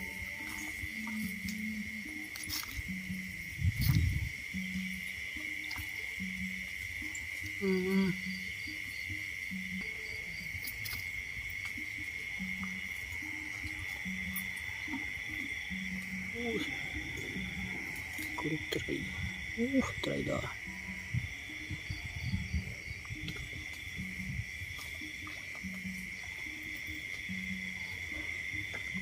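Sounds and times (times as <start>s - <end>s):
wavering call: 0.0s - 8.8s, 9.5s - 29.0s
night insect chorus: 0.0s - 29.0s
low hooting call: 12.2s - 29.0s.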